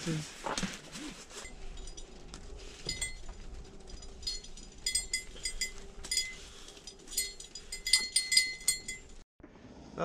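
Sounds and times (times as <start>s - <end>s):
small bell jingling: 1.3s - 9.2s.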